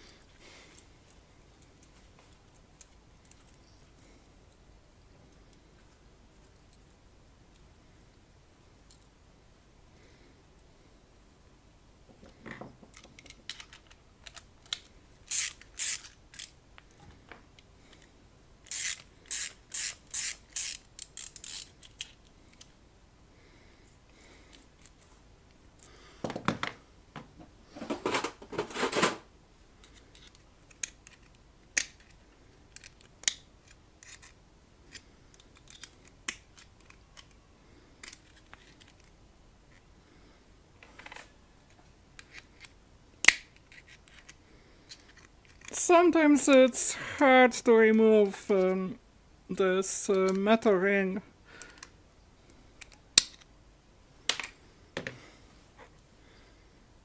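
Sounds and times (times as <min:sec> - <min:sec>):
pliers working on metal: 0:15.3 - 0:16.6, 0:18.6 - 0:22.1.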